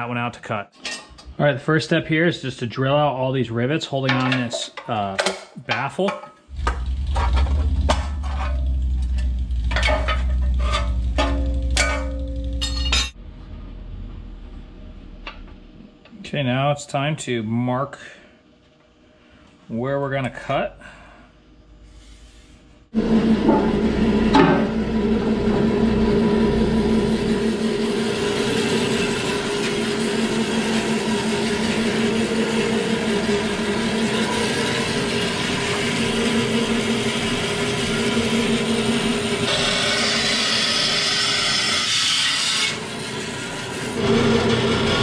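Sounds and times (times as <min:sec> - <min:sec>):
saw blade rasping through metal: 0:06.5 - 0:13.2, 0:23.0 - 0:45.0
band saw motor hum: 0:06.5 - 0:16.0, 0:22.9 - 0:45.0.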